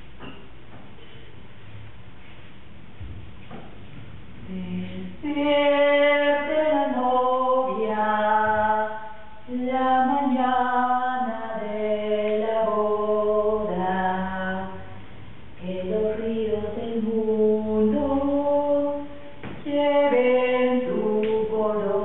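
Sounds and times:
person singing unaccompanied: 0:04.5 - 0:15.0, 0:15.6 - 0:22.0.

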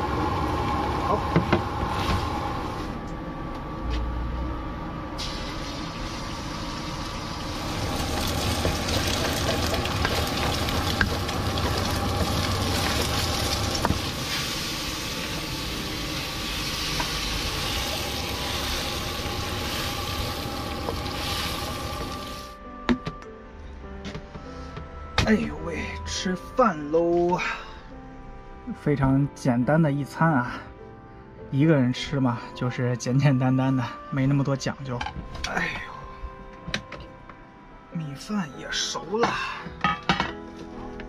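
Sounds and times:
range hood fan hum: 0:00.0 - 0:22.6
food sizzling in a wok: 0:05.2 - 0:22.6.

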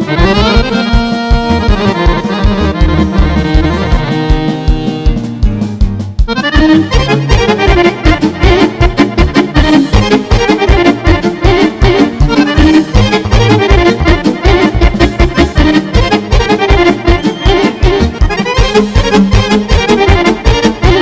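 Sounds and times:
saxophone: 0:00.0 - 0:05.6, 0:06.2 - 0:21.0
accordion fast lead runs: 0:00.0 - 0:21.0
folk band music: 0:00.0 - 0:21.0
keyboard: 0:00.0 - 0:21.0.

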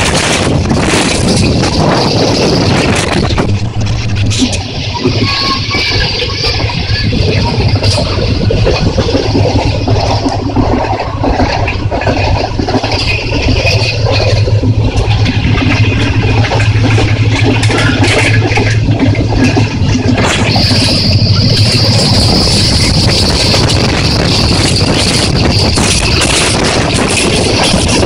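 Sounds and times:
train rumbling and rattling: 0:00.0 - 0:28.0.

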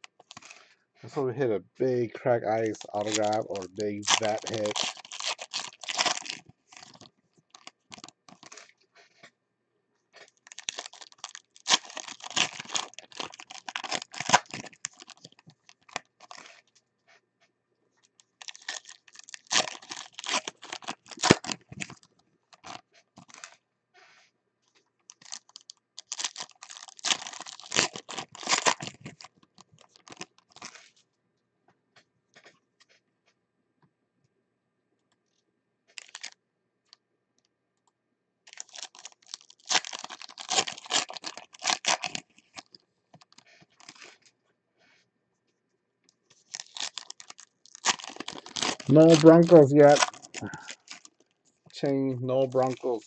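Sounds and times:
foil wrappers tearing and crinkling: 0:00.0 - 0:00.7, 0:02.4 - 0:08.8, 0:10.2 - 0:16.7, 0:18.1 - 0:23.6, 0:25.1 - 0:31.0, 0:35.9 - 0:36.4, 0:38.5 - 0:44.3, 0:46.3 - 0:51.4, 0:52.5 - 0:53.0.

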